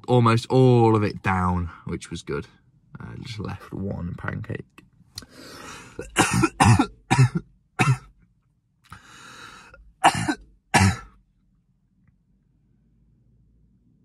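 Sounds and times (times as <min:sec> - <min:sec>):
man breathing in: 0:05.2 - 0:06.0, 0:08.9 - 0:09.8
man coughing: 0:05.6 - 0:08.1, 0:10.0 - 0:11.2.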